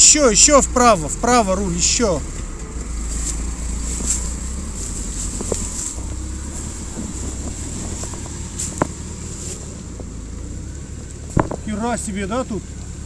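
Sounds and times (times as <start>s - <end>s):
car engine low rumble: 0.0s - 13.0s
faint knocks: 11.3s - 11.7s.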